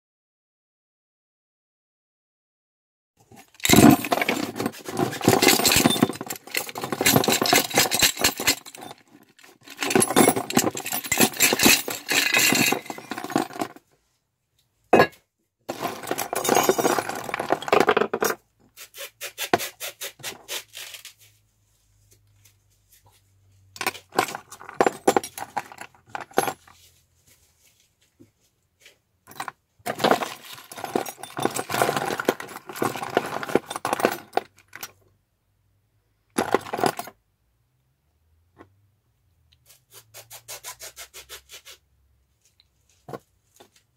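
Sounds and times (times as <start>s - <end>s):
metal hardware clinking: 3.4s - 13.8s, 15.0s - 18.4s, 23.8s - 26.6s.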